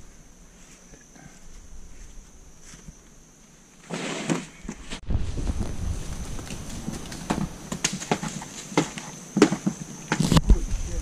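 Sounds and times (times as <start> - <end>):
wind rumbling on microphone: 4.6 - 8.0, 10.2 - 11.0.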